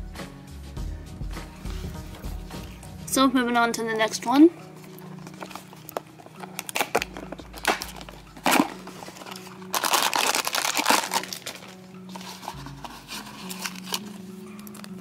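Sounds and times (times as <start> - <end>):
plastic bag crinkling: 4.9 - 15.0.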